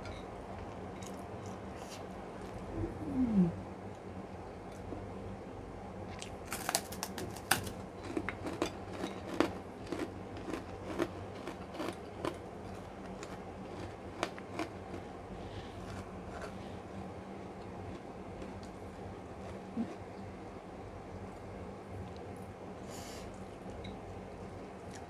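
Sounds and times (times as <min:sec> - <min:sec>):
low steady hum: 0:00.0 - 0:25.0
cracker crunching: 0:06.2 - 0:12.4, 0:13.0 - 0:15.1.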